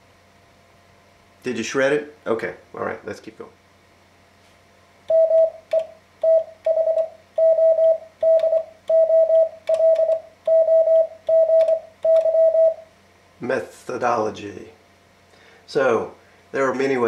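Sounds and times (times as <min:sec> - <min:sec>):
morse code sidetone: 0:05.1 - 0:12.8.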